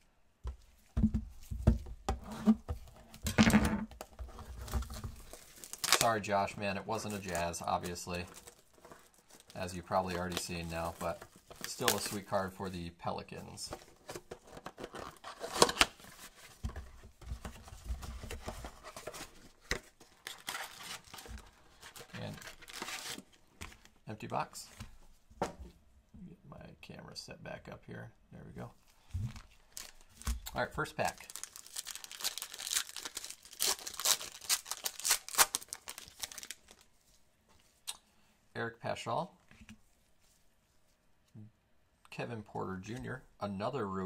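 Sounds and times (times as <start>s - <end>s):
cardboard and wrappers tearing: 4.5s - 6.3s, 6.9s - 12.2s, 18.8s - 23.3s, 29.4s - 36.8s.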